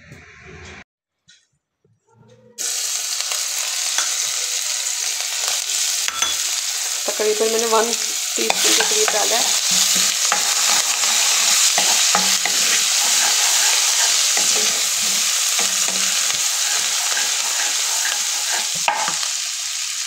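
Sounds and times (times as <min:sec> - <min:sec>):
food sizzling in hot oil: 0:02.6 - 0:20.0
spatula scraping a pan: 0:06.4 - 0:19.6.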